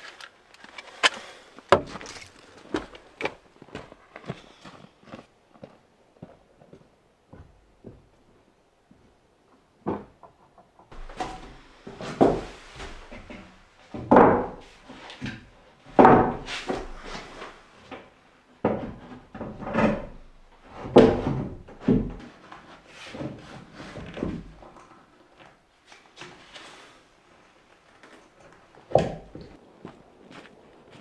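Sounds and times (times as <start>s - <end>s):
wooden floorboard knocks and thuds: 14.0s - 14.6s, 16.0s - 16.4s.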